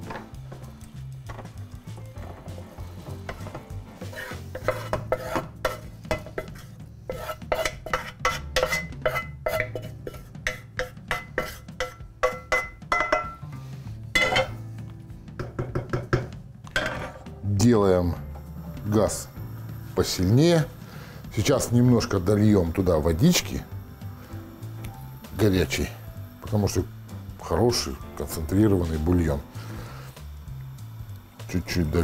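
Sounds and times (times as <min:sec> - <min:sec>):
utensil scraping pan: 0:01.3 - 0:13.3.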